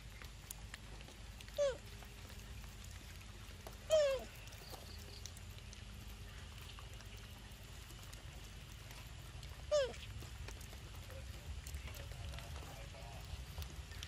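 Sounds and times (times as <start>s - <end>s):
young macaque crying: 1.6s - 1.8s, 3.9s - 4.3s, 9.7s - 10.0s.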